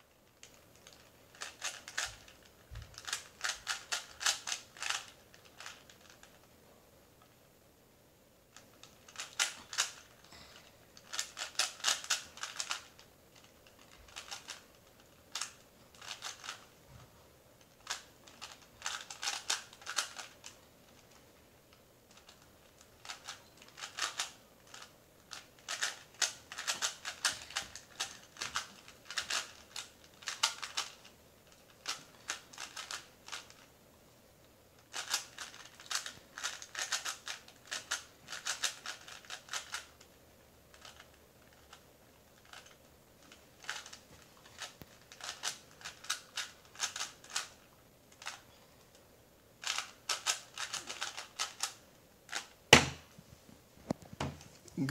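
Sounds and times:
puzzle cube layers clicking: 0:00.3 - 0:06.4, 0:08.5 - 0:10.3, 0:11.0 - 0:16.7, 0:17.6 - 0:21.1, 0:22.1 - 0:33.7, 0:34.8 - 0:40.1, 0:42.4 - 0:48.4, 0:49.6 - 0:52.6.

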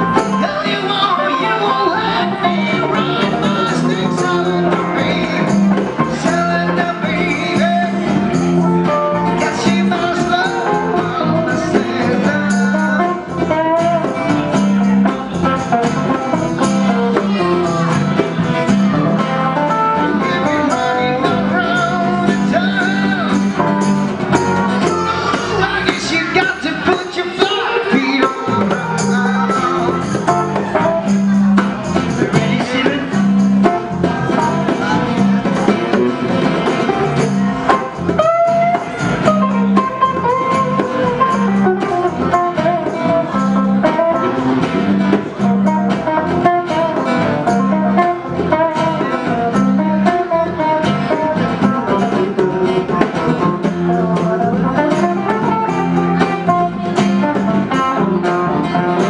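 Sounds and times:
harmonica: 0:00.0 - 0:12.2
guitars: 0:00.0 - 0:59.0.

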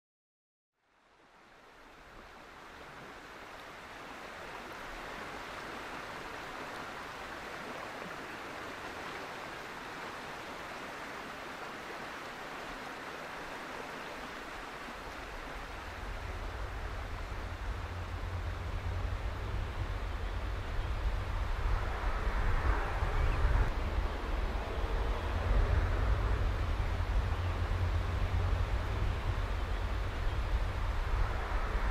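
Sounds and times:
river water rushing: 0:01.1 - 0:31.9
low rumble: 0:15.7 - 0:31.9.

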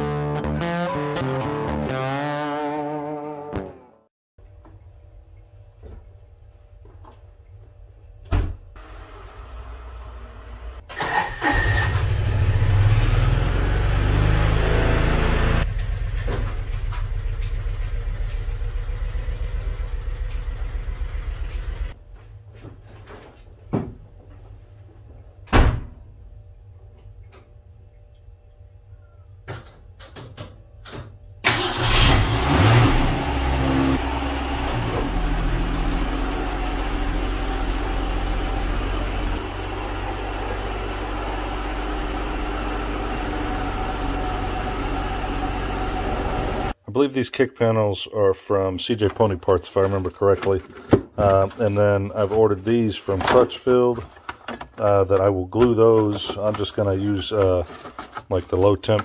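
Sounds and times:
car engine starting and running: 0:08.8 - 0:22.0, 0:31.4 - 0:46.8
utility vehicle engine revving: 0:11.0 - 0:22.0, 0:31.5 - 0:46.8.

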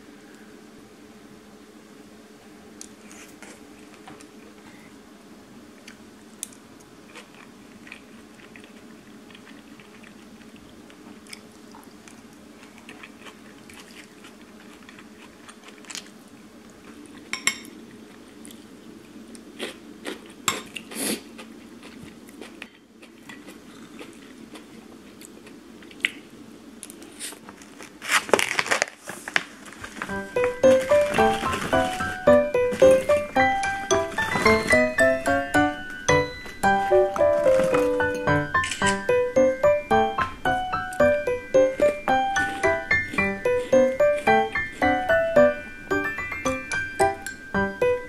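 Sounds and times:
plastic snack bag crinkling: 0:27.4 - 0:35.0.

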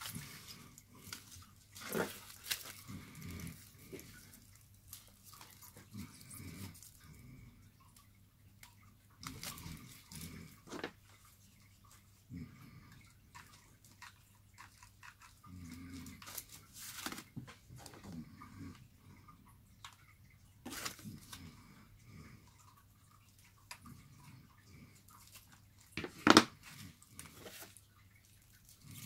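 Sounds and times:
aluminium foil crinkling: 0:00.0 - 0:06.9, 0:15.9 - 0:18.0, 0:20.7 - 0:21.4, 0:25.2 - 0:29.0.

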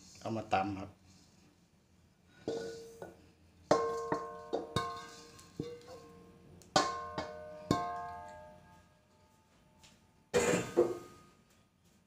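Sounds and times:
wok ringing: 0:02.5 - 0:03.1, 0:03.7 - 0:08.8
metal wok knocking on mortar rim: 0:03.7 - 0:06.0, 0:06.7 - 0:08.2.

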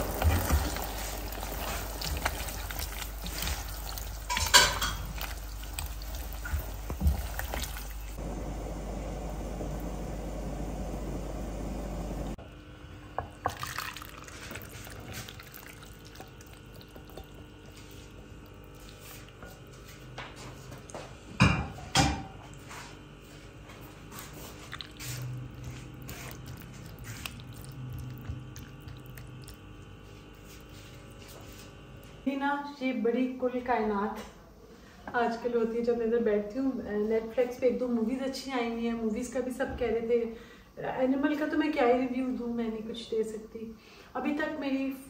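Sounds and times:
sauce bubbling in a pan: 0:00.0 - 0:08.2, 0:13.3 - 0:20.0, 0:24.4 - 0:31.4.

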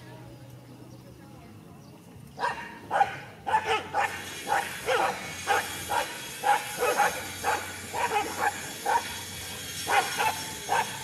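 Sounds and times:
dogs barking: 0:02.4 - 0:11.0.

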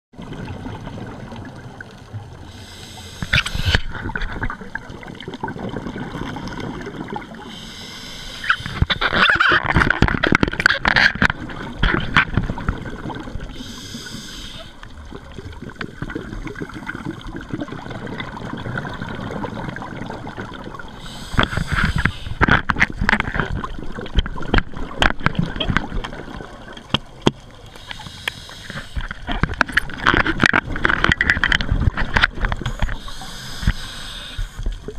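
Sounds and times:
bubbles gurgling underwater: 0:00.2 - 0:02.6, 0:03.2 - 0:07.5, 0:08.4 - 0:13.6, 0:14.8 - 0:27.8
regulator hissing inhalations: 0:02.5 - 0:03.9, 0:07.5 - 0:08.9, 0:13.5 - 0:14.8, 0:21.0 - 0:22.4, 0:27.7 - 0:29.1, 0:32.9 - 0:34.7.

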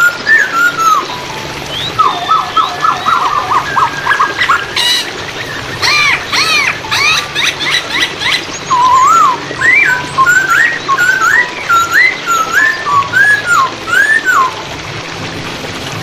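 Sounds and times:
bird singing whistled notes: 0:00.0 - 0:14.7
flowing water hiss: 0:00.0 - 0:16.0.

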